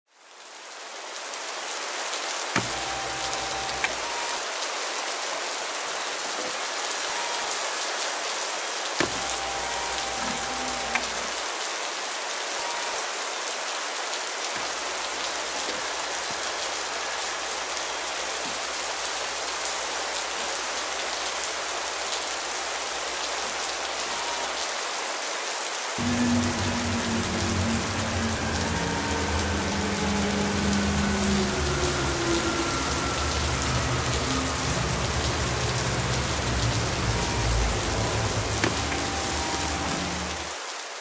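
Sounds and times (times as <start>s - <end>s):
heavy rain on hard surfaces: 0.1s - 41.0s
low droning hum: 26.0s - 40.5s.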